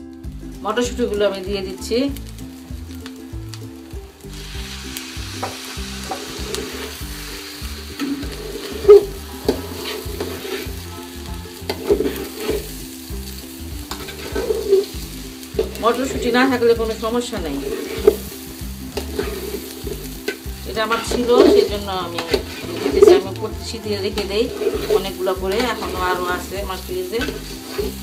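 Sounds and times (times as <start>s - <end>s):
rice sizzling in oil: 0.0s - 28.0s
spoon scraping rice in pot: 24.5s - 26.0s.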